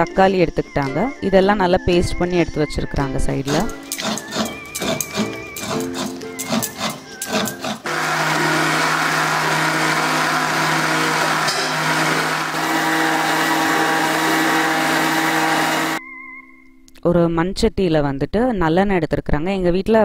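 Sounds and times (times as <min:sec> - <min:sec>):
background music: 0:00.0 - 0:17.0
mixer grinder running: 0:03.5 - 0:16.0.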